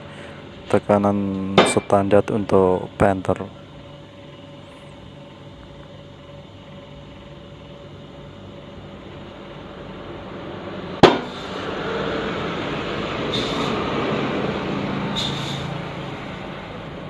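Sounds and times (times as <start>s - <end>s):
heavy truck passing: 9.7s - 17.0s.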